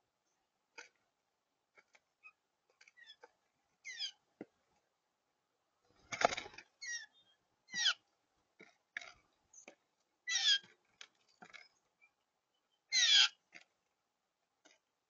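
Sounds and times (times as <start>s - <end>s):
blue jay harsh calls: 3.8s - 4.2s, 6.8s - 8.0s, 10.3s - 10.7s, 12.9s - 13.4s
wings flapping: 6.0s - 6.7s.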